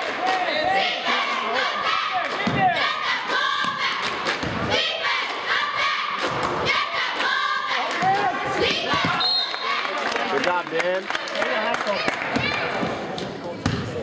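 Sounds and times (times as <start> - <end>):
players and crowd shouting: 0.0 - 4.0, 4.7 - 10.6.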